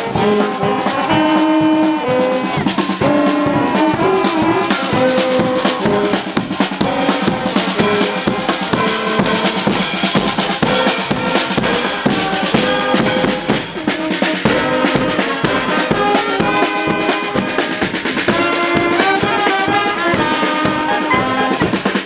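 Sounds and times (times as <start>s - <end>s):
bass and snare drums: 0.0s - 22.0s
marching band playing: 0.0s - 22.0s.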